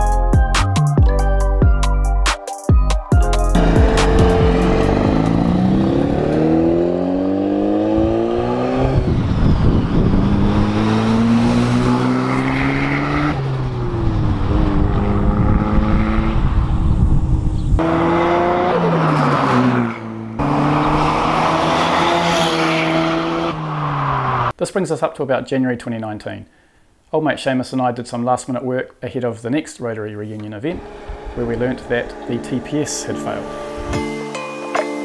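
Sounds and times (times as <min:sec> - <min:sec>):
rotary engine accelerating: 0:03.5 - 0:24.5, 0:30.7 - 0:33.9.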